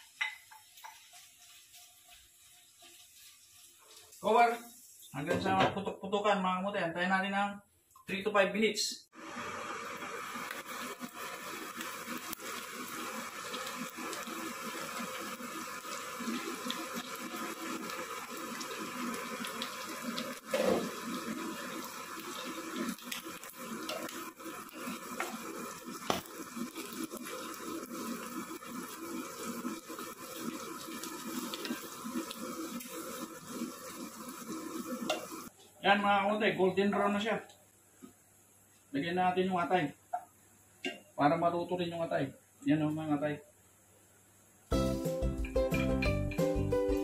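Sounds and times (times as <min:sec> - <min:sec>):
pork frying in fat: 0:00.0 - 0:05.9, 0:09.1 - 0:37.6, 0:44.7 - 0:47.0.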